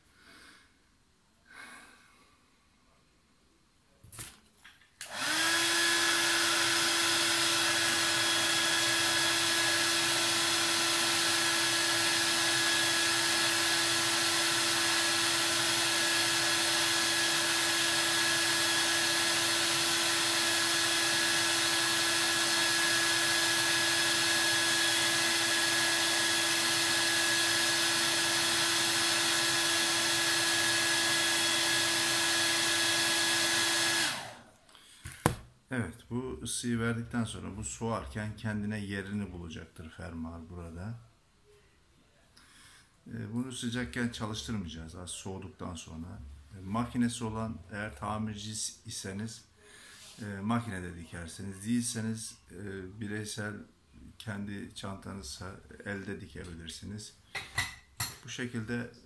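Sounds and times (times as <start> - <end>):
hair dryer running: 5.0 - 34.5.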